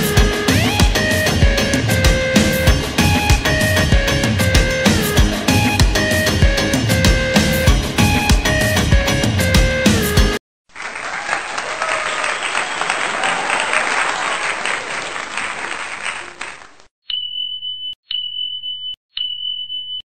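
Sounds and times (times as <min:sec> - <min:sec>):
applause: 0:10.7 - 0:16.9.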